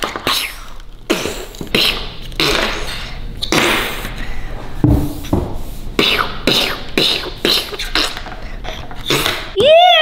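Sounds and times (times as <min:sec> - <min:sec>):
child making hissing mouth sounds: 0:00.0 - 0:04.2, 0:06.0 - 0:09.6.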